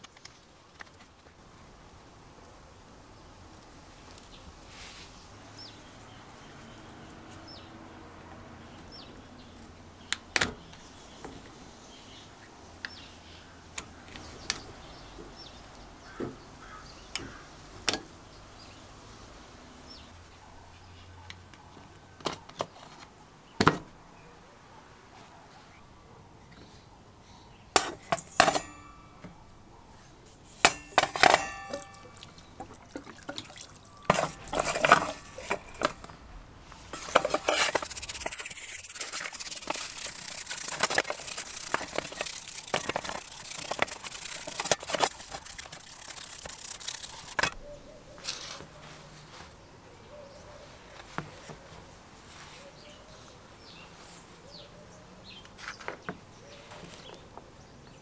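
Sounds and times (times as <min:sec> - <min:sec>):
metal parts clinking in steel bowl: 0:28.0 - 0:29.2, 0:30.7 - 0:32.5, 0:34.0 - 0:36.1, 0:37.0 - 0:47.6.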